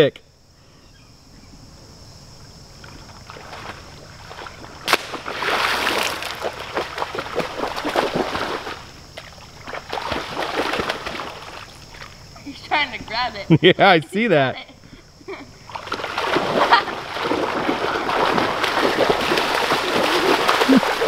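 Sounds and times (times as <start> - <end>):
crickets chirping: 0.0 - 21.0
dog splashing through water: 3.1 - 12.1, 15.7 - 21.0
stick splashing into water: 3.3 - 11.7, 15.8 - 21.0.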